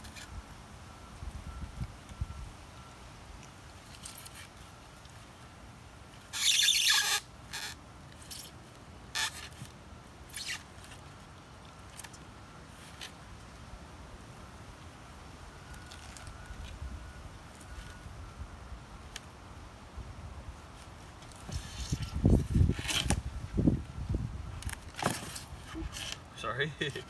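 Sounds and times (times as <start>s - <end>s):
small clicks and scrapes: 3.4s - 5.2s, 20.8s - 23.2s, 24.6s - 26.3s.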